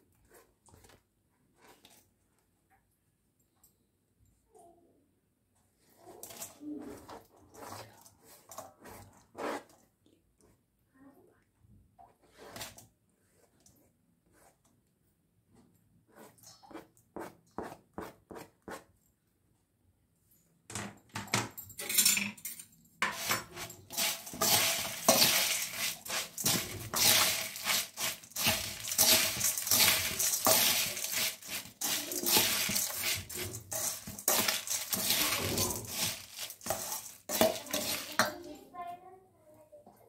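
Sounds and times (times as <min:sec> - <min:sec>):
spoon scraping steel bowl: 0:06.2 - 0:09.8, 0:23.0 - 0:38.5
puffed rice rustling: 0:23.2 - 0:38.2.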